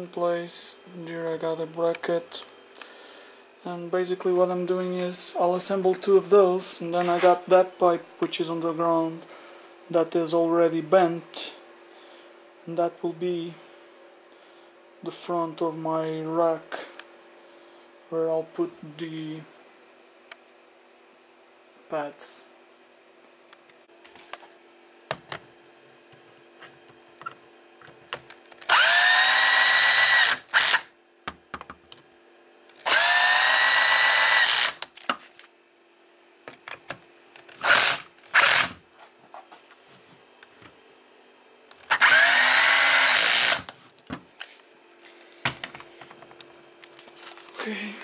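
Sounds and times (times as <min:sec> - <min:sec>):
cordless drill motor: 0:28.6 - 0:31.0, 0:32.7 - 0:34.9, 0:37.4 - 0:38.8, 0:41.7 - 0:43.7.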